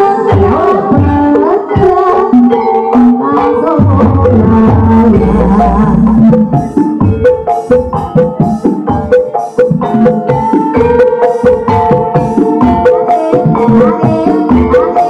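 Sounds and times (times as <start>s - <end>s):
drum strokes: 3.8s - 15.0s.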